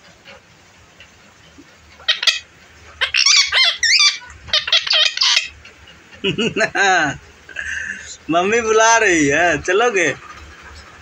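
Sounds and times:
parakeet shrill chattering calls: 0:02.0 - 0:05.6.

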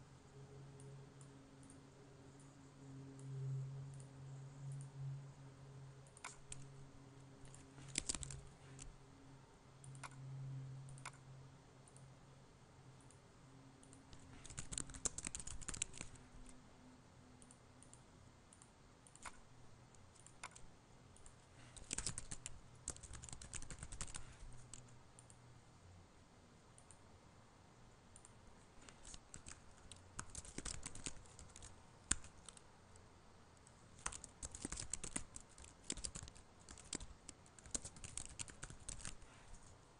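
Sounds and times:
mouse clicks: 0:06.0 - 0:06.7, 0:07.4 - 0:08.9, 0:09.8 - 0:10.2, 0:10.9 - 0:11.2, 0:13.8 - 0:16.6, 0:17.4 - 0:19.4, 0:20.0 - 0:25.4, 0:28.2 - 0:32.6, 0:34.0 - 0:39.7
typing on computer keyboard: 0:06.0 - 0:06.7, 0:07.4 - 0:08.9, 0:13.8 - 0:16.6, 0:18.6 - 0:19.4, 0:20.1 - 0:25.4, 0:28.2 - 0:32.7, 0:33.9 - 0:39.6.

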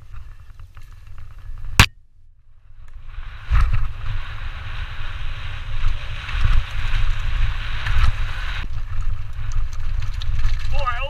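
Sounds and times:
wind buffeting on microphone: 0:02.8 - 0:11.0.

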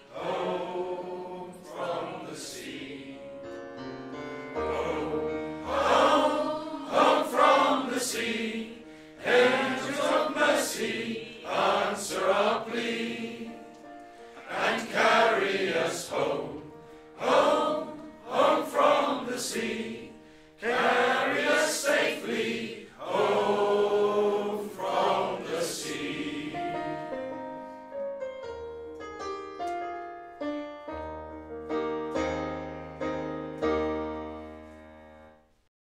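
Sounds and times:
choir singing held notes: 0:00.0 - 0:27.8
piano chords with deep bass: 0:26.6 - 0:35.1.

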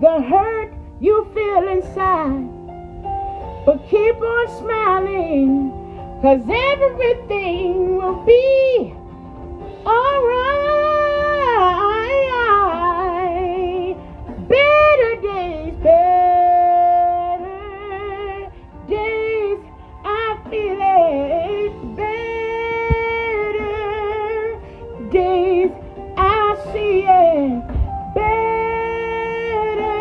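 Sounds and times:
woman singing gospel-style: 0:00.0 - 0:02.5, 0:03.7 - 0:09.0, 0:09.8 - 0:30.0
singer breathing: 0:03.1 - 0:03.7, 0:05.7 - 0:06.2, 0:18.5 - 0:18.8, 0:19.7 - 0:20.0.

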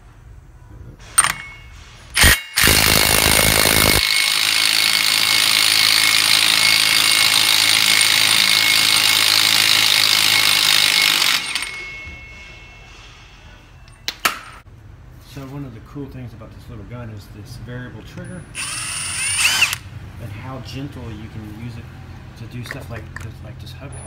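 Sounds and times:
impact wrench hammering: 0:01.2 - 0:12.3.

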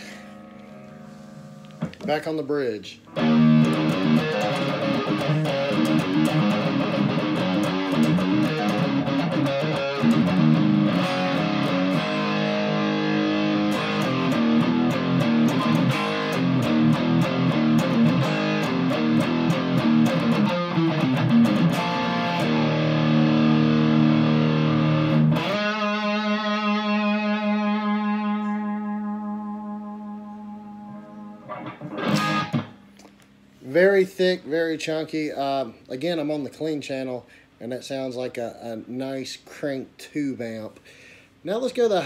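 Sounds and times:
overdriven electric guitar chords: 0:00.0 - 0:02.0, 0:03.0 - 0:33.4.

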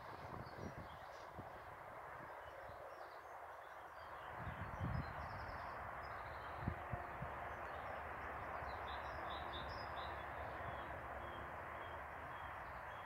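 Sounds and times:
road traffic hiss: 0:00.0 - 0:13.0.

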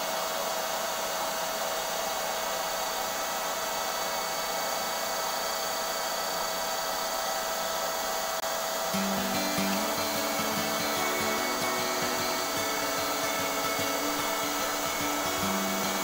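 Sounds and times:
paint spray gun motor whine: 0:00.0 - 0:16.0.

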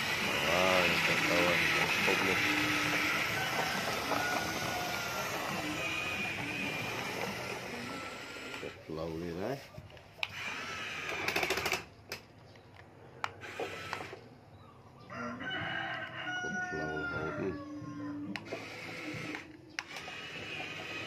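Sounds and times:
rooster crowing: 0:02.5 - 0:06.2, 0:15.0 - 0:18.3
sharp clicks: 0:10.1 - 0:14.2, 0:18.3 - 0:20.7.

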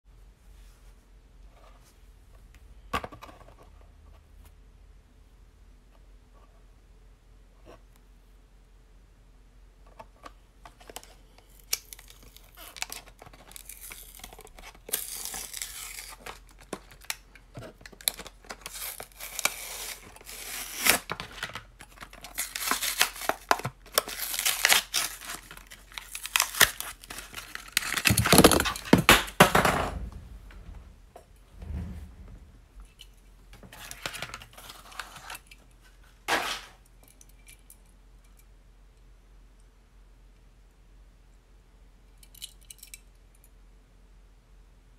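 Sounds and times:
cardboard tearing and crackling: 0:11.8 - 0:29.3.

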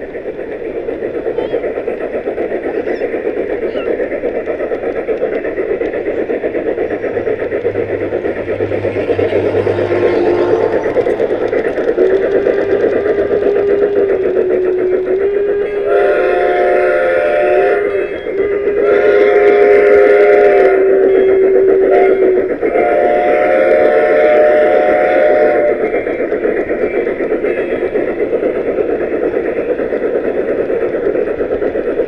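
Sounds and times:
steam locomotive chuffing: 0:00.0 - 0:32.0
steam whistle blowing: 0:07.7 - 0:11.4, 0:12.0 - 0:25.8.

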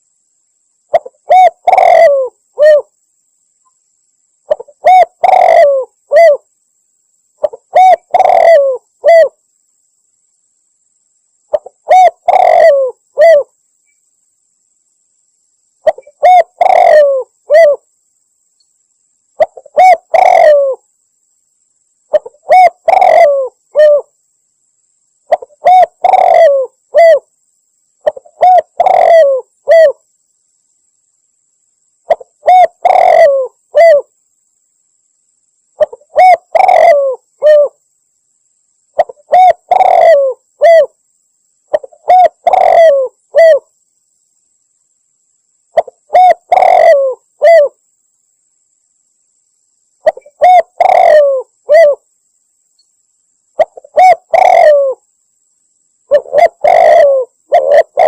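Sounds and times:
dove cooing: 0:00.9 - 0:02.9, 0:04.5 - 0:06.5, 0:07.4 - 0:09.4, 0:11.5 - 0:13.6, 0:15.8 - 0:17.9, 0:19.4 - 0:20.8, 0:22.1 - 0:24.1, 0:25.3 - 0:27.3, 0:28.0 - 0:30.0, 0:32.1 - 0:34.1, 0:35.8 - 0:37.8, 0:39.0 - 0:41.0, 0:41.7 - 0:43.7, 0:45.8 - 0:47.8, 0:50.0 - 0:52.0, 0:53.6 - 0:55.0, 0:56.1 - 0:58.0.

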